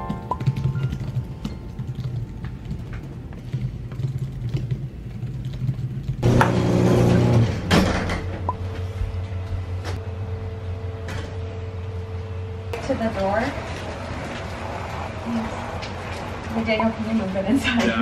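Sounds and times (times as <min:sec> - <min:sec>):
typing on keyboard: 0:00.0 - 0:06.2.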